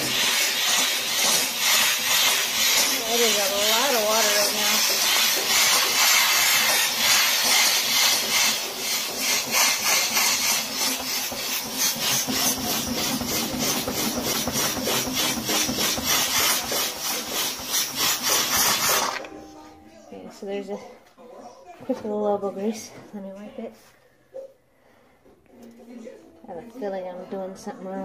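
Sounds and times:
brush scrubbing a stovetop: 0:00.0 - 0:19.2
steam cleaner hissing: 0:00.0 - 0:19.2.

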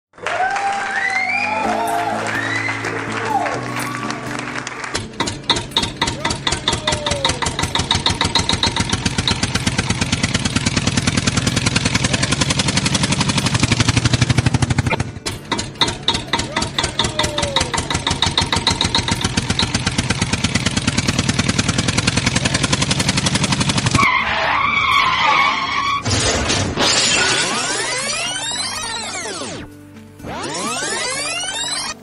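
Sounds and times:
tractor engine chugging: 0:04.9 - 0:26.0.

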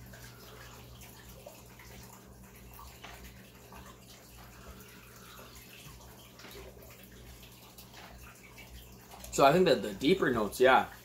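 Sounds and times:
water trickling: 0:00.0 - 0:11.0.

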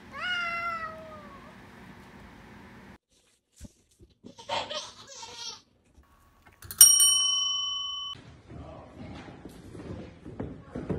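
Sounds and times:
service bell ding: 0:06.7 - 0:08.2.

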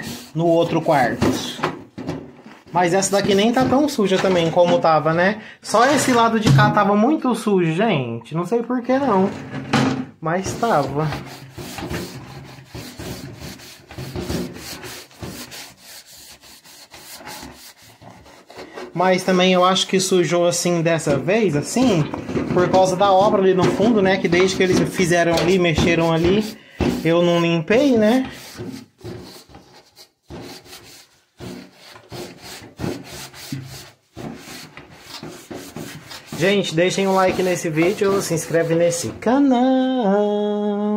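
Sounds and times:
sponge scrubbing window frame: 0:00.0 - 0:01.6, 0:10.5 - 0:20.4, 0:22.7 - 0:39.1.

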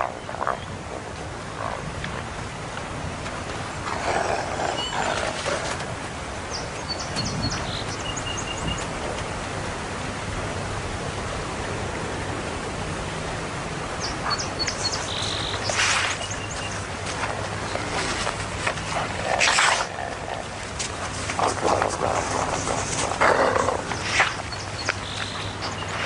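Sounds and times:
steady hiss: 0:00.0 - 0:26.0
wolves feeding rough bursts: 0:03.1 - 0:06.7, 0:13.4 - 0:26.0
bird chirps: 0:06.5 - 0:08.9, 0:14.0 - 0:16.8, 0:23.9 - 0:26.0.

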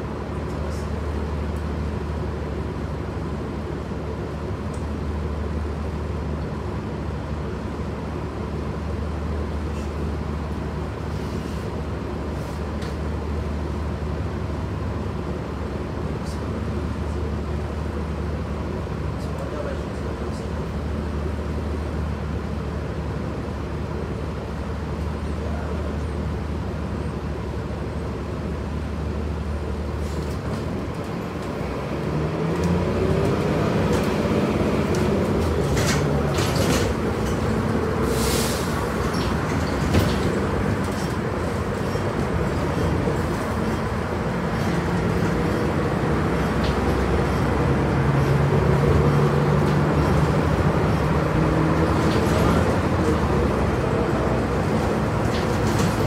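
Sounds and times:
bus engine hum: 0:00.0 - 0:56.0
road noise: 0:00.0 - 0:56.0
bus body rattling: 0:29.3 - 0:56.0.

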